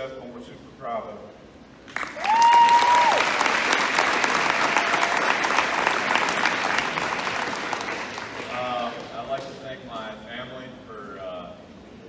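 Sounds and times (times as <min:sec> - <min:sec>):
audience applauding: 0:01.9 - 0:09.4.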